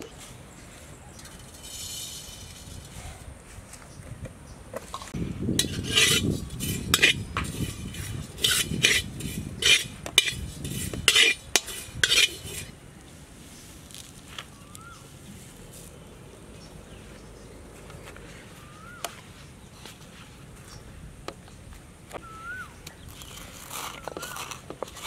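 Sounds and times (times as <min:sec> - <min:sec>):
metal spoon clinking and scraping: 0:01.2 - 0:03.0, 0:05.5 - 0:12.7.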